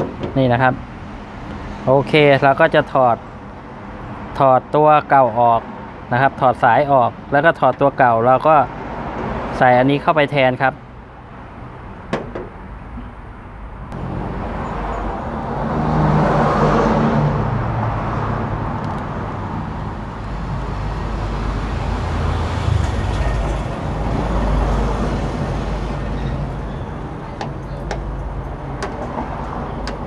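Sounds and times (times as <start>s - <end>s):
passing vehicle engine: 13.8s - 27.2s.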